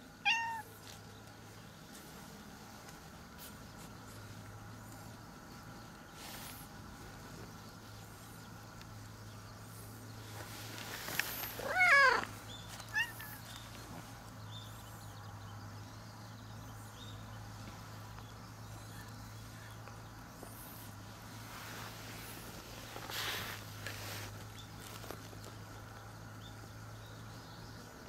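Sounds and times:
cat meowing: 0.2 - 0.7, 11.6 - 12.3, 12.9 - 13.4.

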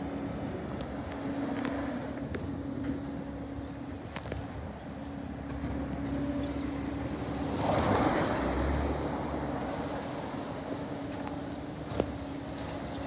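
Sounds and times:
garbage truck humming: 0.0 - 13.0
car driving past: 5.6 - 10.8.

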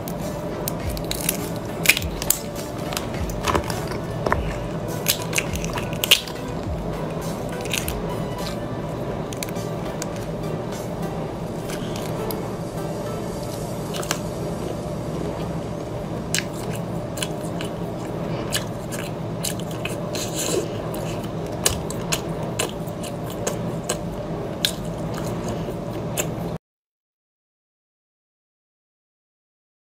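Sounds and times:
prawn shells cracking: 0.0 - 10.4
wet chewing: 0.0 - 10.4, 11.5 - 12.6, 13.4 - 26.6
steady low hum: 0.0 - 26.6.

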